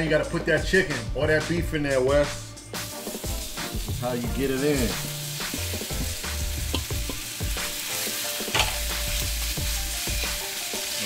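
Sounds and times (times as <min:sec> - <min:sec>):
chicken sizzling in hot oil: 0:02.7 - 0:11.0
metal tongs tapping a pan: 0:06.7 - 0:07.3, 0:08.4 - 0:09.0.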